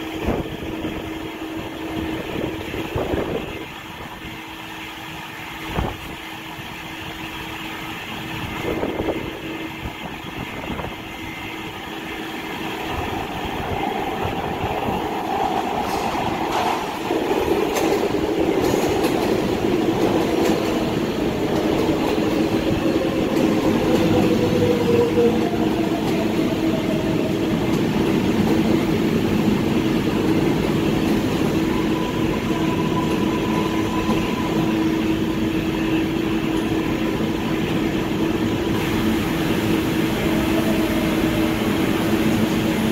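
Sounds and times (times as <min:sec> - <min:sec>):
subway train rumbling: 0:00.0 - 0:42.9.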